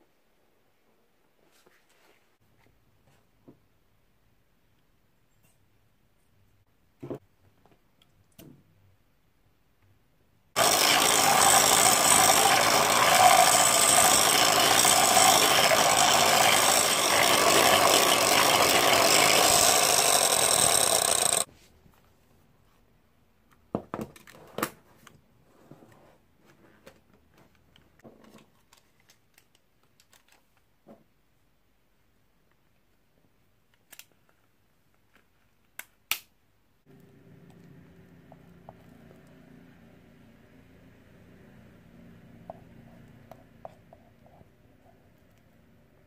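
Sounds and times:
electric hand mixer running: 0:10.6 - 0:21.5.

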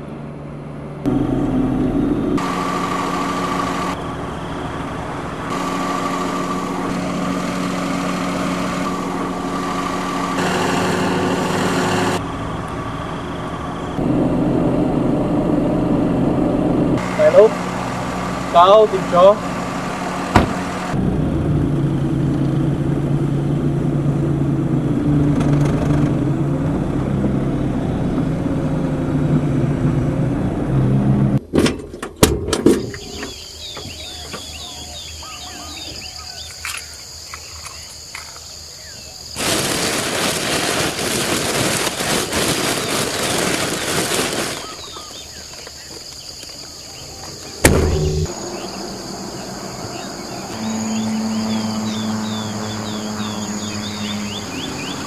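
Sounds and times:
vehicle engine humming: 0:00.0 - 0:31.5, 0:39.3 - 0:55.0
insect drone: 0:02.4 - 0:15.1, 0:32.8 - 0:55.0
bird chirps: 0:32.8 - 0:39.2, 0:44.6 - 0:55.0
sharp knock: 0:47.6 - 0:48.4
loud rushing noise: 0:47.6 - 0:49.8.

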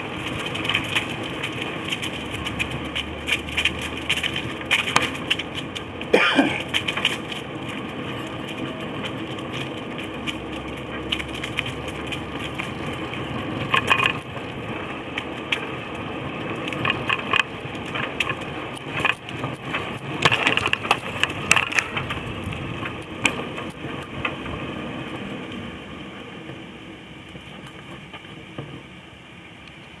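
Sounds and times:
bike rattling over bumps: 0:00.0 - 0:25.2
bicycle tyres crunching on leaves: 0:00.0 - 0:26.7.

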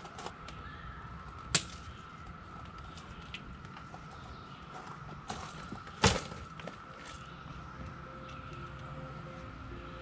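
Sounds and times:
steady high-pitched tone: 0:06.8 - 0:10.0.

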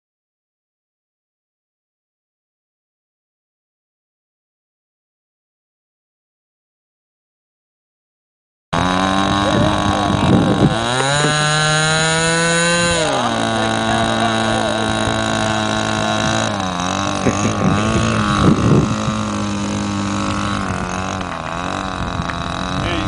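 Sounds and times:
model airplane engine running: 0:08.8 - 0:23.0.

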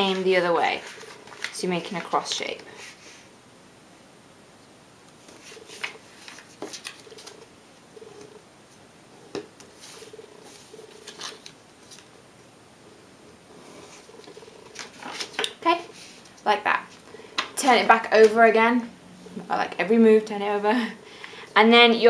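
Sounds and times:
paper rustling and crinkling: 0:00.0 - 0:02.4, 0:05.2 - 0:07.5, 0:09.6 - 0:12.1, 0:14.0 - 0:16.4.

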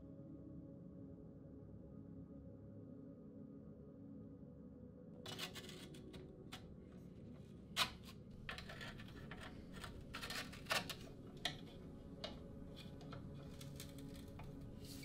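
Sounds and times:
tool clicking on bike frame: 0:07.8 - 0:15.0.

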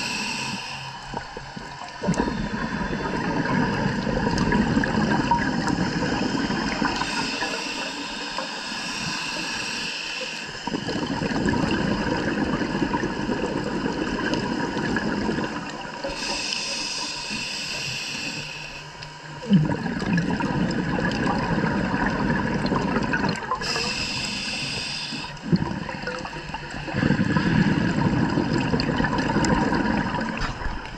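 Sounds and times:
regulator hissing inhalations: 0:00.0 - 0:01.3, 0:05.8 - 0:11.1, 0:16.0 - 0:19.3, 0:23.5 - 0:27.9
bubbling exhaled air: 0:00.0 - 0:18.6, 0:19.2 - 0:30.9.

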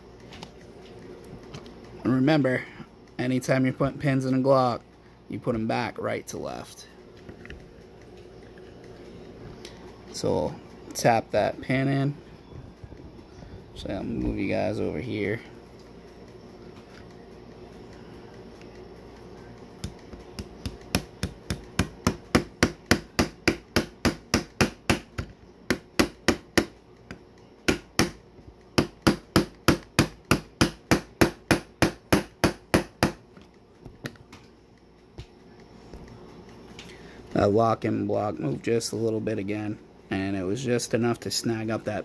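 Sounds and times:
hammer tapping steel pin: 0:19.8 - 0:28.2.

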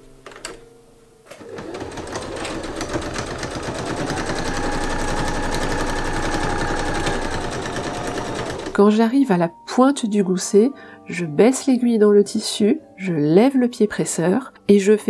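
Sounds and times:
sewing machine stitching: 0:01.3 - 0:08.8.

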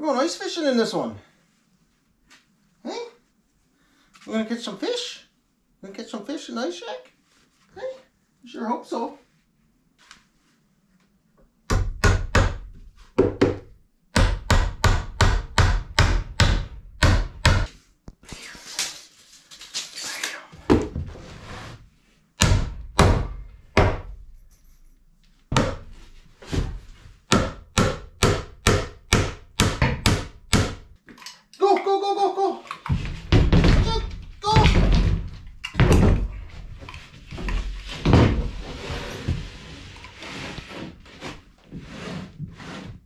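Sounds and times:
hammer striking wood: 0:11.7 - 0:13.6, 0:14.2 - 0:17.7, 0:22.4 - 0:24.1, 0:25.5 - 0:25.9, 0:27.3 - 0:30.9.

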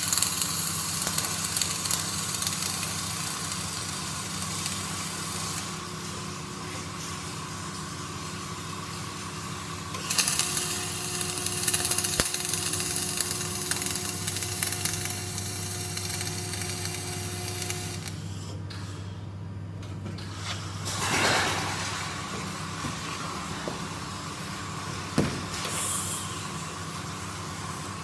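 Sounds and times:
welding arc crackling and hissing: 0:00.0 - 0:06.3, 0:08.8 - 0:18.3, 0:23.3 - 0:28.0
steady low hum: 0:00.0 - 0:28.0.

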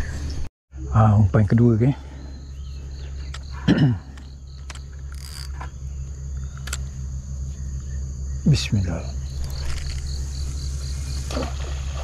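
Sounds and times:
insects calling: 0:00.0 - 0:12.0
fishing reel clicks: 0:04.7 - 0:05.6.

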